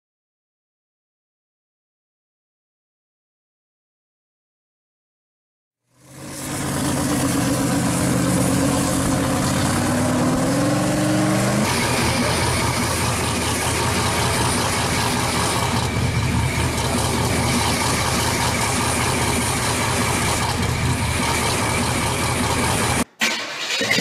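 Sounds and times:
car engine idling: 5.9s - 23.0s.

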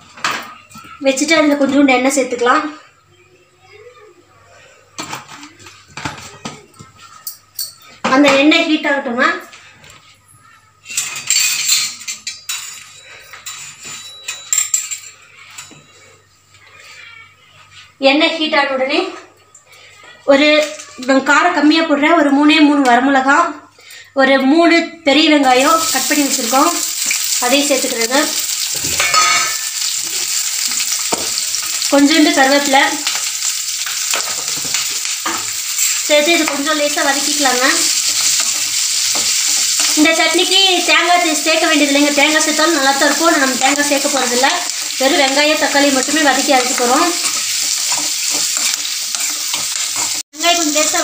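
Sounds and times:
hot oil crackling and spitting: 25.5s - 51.0s.

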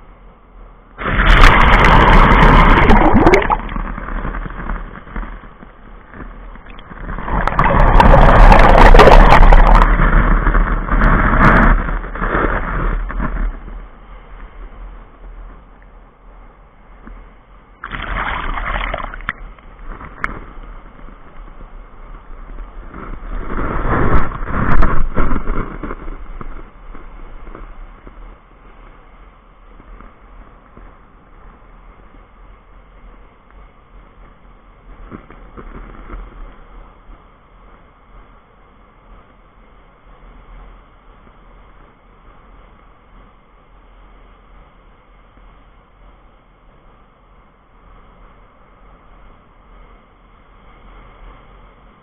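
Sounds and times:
soft surf wash: 0.0s - 52.0s
waves rushing over camera: 0.0s - 52.0s.

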